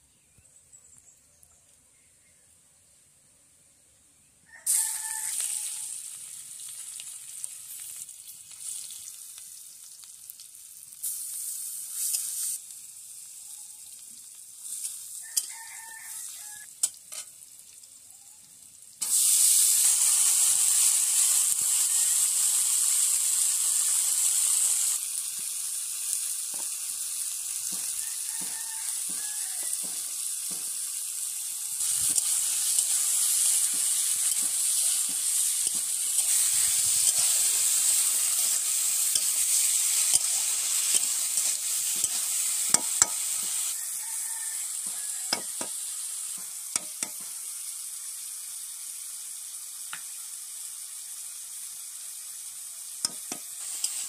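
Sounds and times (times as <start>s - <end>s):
rooster crowing: 4.4s - 6.0s, 15.2s - 16.7s, 27.7s - 30.7s, 43.7s - 45.7s
hot oil sizzling in a wok: 4.5s - 54.0s.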